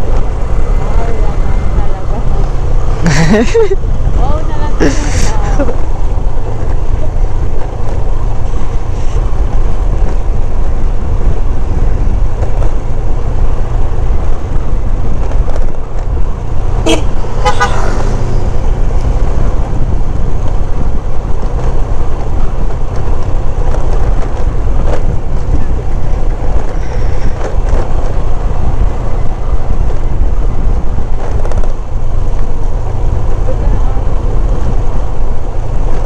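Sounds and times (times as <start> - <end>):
wind rumble on microphone: 0.0 - 36.0
motorcycle engine: 5.6 - 36.0
horn honk: 16.8 - 18.2.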